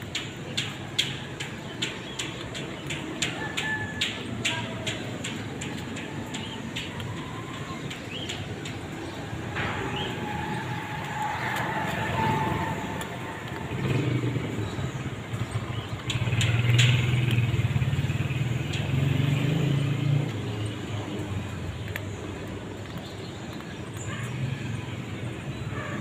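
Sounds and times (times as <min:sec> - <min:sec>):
vehicle engine running: 0:04.2 - 0:26.0.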